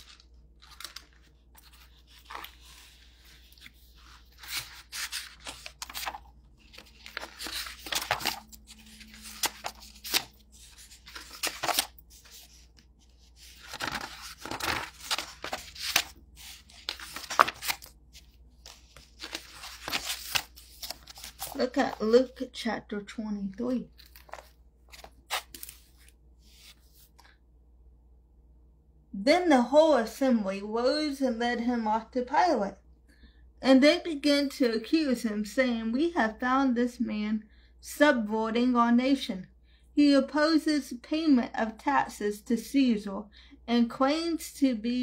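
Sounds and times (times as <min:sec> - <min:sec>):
paper pages rustling: 0:00.0 - 0:22.4, 0:23.7 - 0:27.3.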